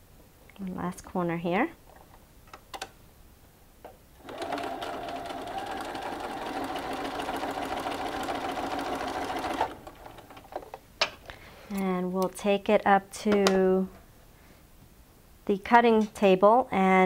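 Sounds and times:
sewing machine stitching: 4.2s - 10.6s.

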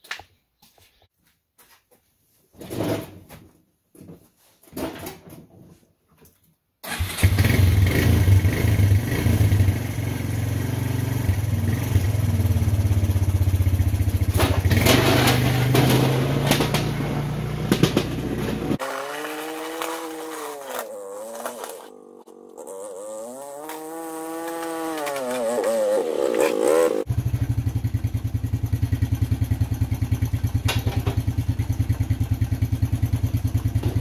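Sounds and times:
atv engine running: 7.5s - 19.0s, 21.0s - 34.0s.

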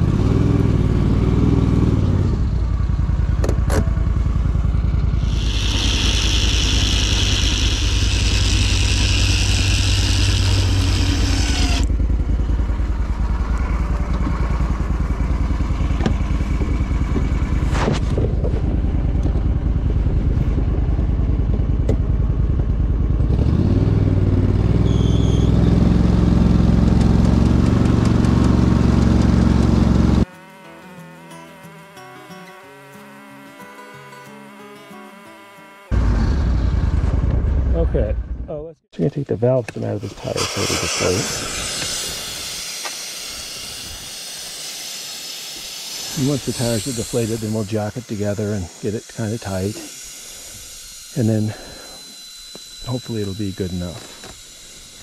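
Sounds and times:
vehicle engine running: 0.0s - 30.6s, 35.4s - 55.0s
loud high hiss: 40.0s - 52.1s.

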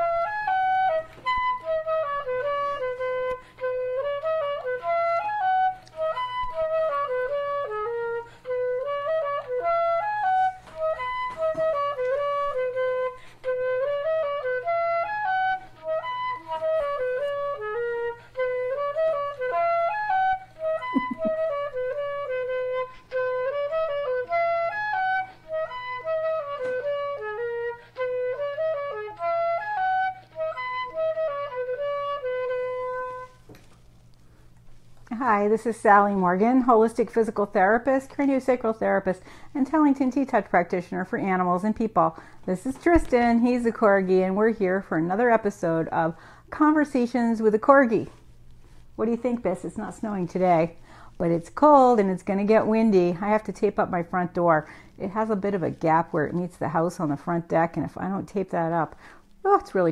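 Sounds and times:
flute melody: 0.0s - 34.1s.

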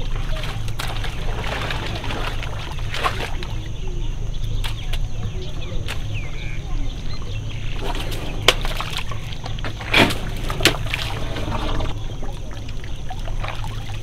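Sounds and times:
elephant squelching in mud: 0.0s - 3.6s, 5.8s - 14.0s
sharp wet slaps: 0.3s - 3.6s, 4.5s - 5.1s, 8.4s - 9.2s.

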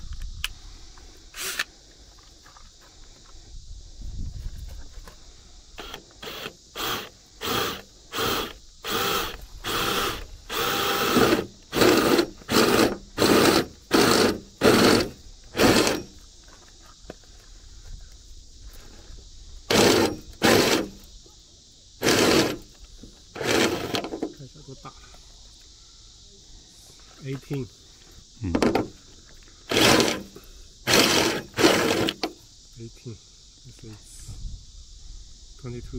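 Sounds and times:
cordless drill drilling metal: 5.8s - 16.1s, 19.7s - 21.0s, 22.0s - 22.7s, 23.3s - 24.1s, 29.7s - 32.3s.

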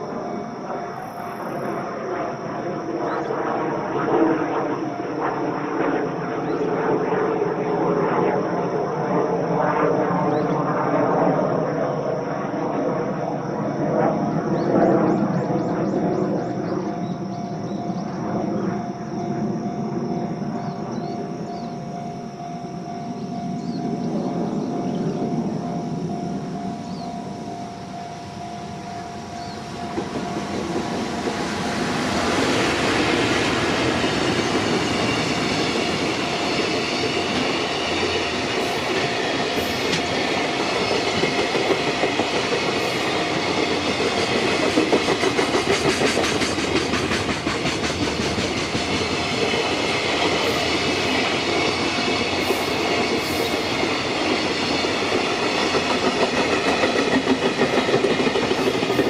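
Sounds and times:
electric locomotive passing: 0.0s - 59.0s
train wheel clatter: 29.4s - 59.0s.

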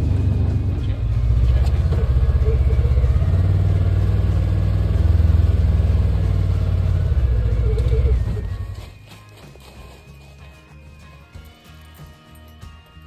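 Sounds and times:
utility vehicle engine droning: 0.0s - 9.0s.

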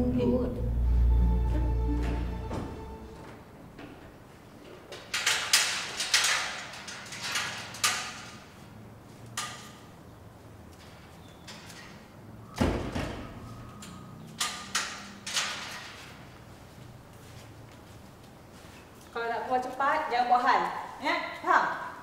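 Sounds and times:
metal gate rattling and scraping: 3.8s - 16.6s
metal gate clanging shut: 4.8s - 8.8s, 9.4s - 10.0s, 10.8s - 16.3s.

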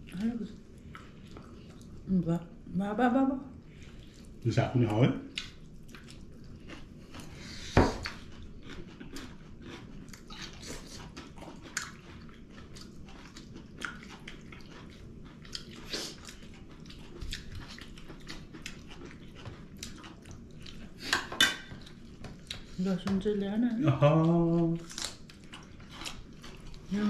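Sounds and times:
people chewing food: 0.0s - 2.2s, 3.5s - 27.0s.

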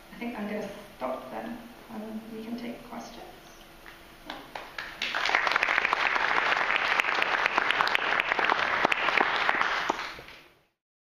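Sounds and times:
audience applauding: 4.3s - 10.5s.

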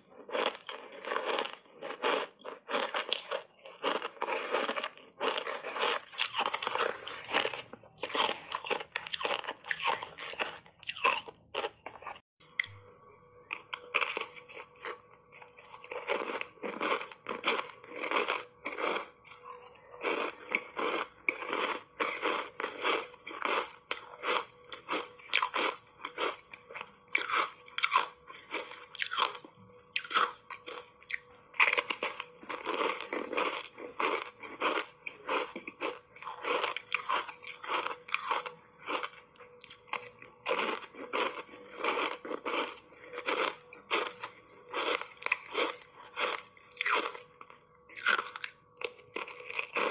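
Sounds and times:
ice being bitten and chewed: 0.0s - 12.8s, 13.4s - 49.9s.

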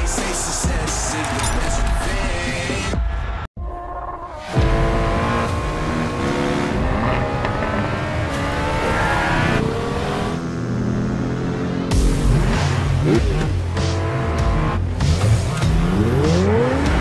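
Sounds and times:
vehicle engine revving hard: 4.5s - 17.0s.

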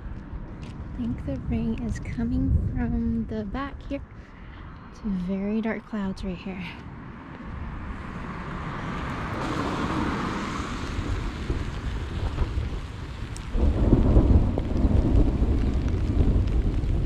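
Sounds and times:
thunder rumbling: 0.0s - 4.0s, 7.8s - 17.0s
rain falling: 8.4s - 17.0s.

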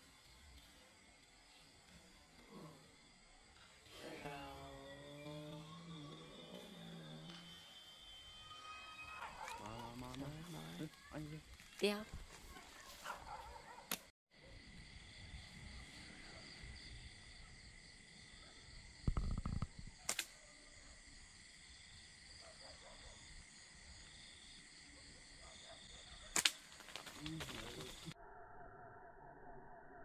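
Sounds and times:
night insects buzzing: 0.0s - 12.3s, 13.0s - 28.2s
sharp snaps: 19.1s - 20.4s, 26.3s - 28.1s.

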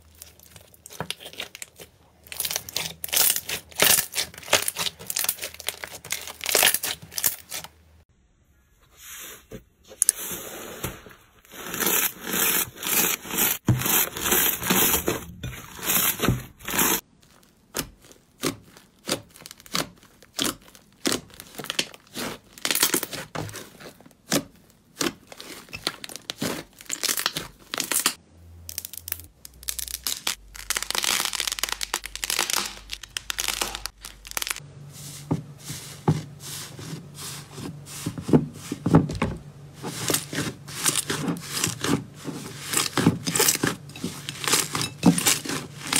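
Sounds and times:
slime crackling and popping: 0.0s - 7.6s, 16.8s - 23.4s, 24.2s - 34.6s.

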